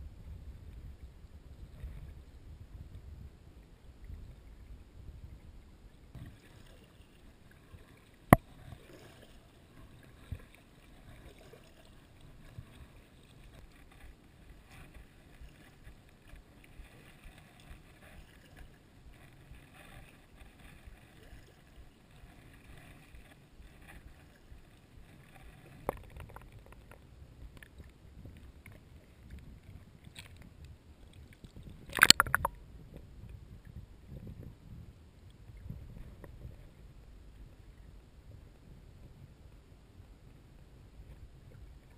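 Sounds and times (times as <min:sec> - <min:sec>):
water sloshing and paddle noise: 0:00.0 - 0:41.9
water splashing: 0:31.4 - 0:32.6.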